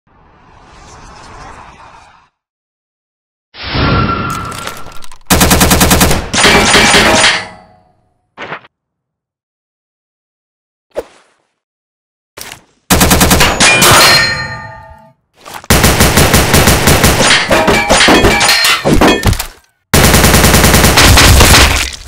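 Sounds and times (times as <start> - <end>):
automatic gunfire bursts: 5.3 - 6.8, 12.9 - 13.5, 15.7 - 17.2, 20.0 - 21.6.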